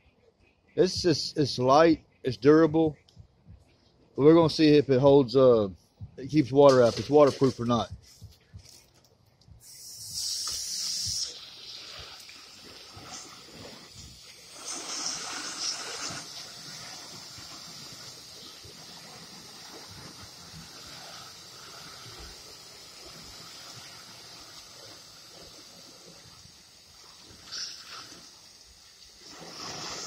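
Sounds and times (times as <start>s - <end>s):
hose water spray hissing: 9.6s - 30.0s.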